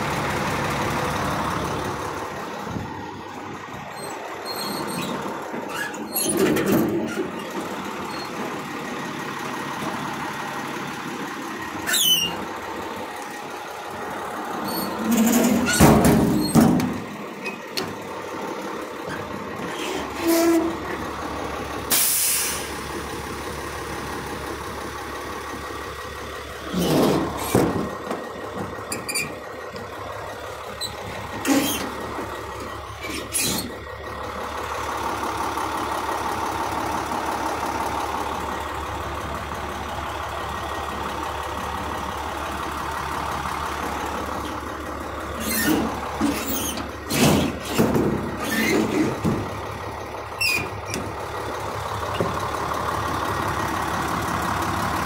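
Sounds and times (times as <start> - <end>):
diesel engine idling: 0.0 - 55.0
metal doors clanking shut: 14.9 - 17.1.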